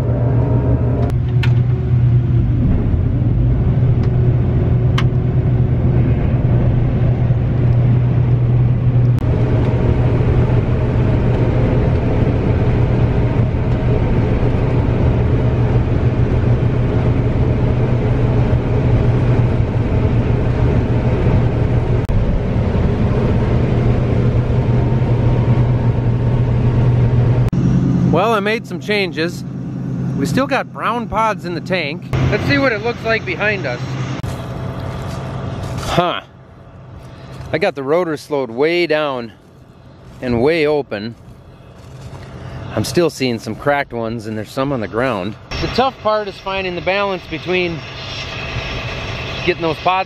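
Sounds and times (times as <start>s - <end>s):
combine harvester engine humming: 0.0s - 50.0s
rushing intake noise: 23.0s - 50.0s.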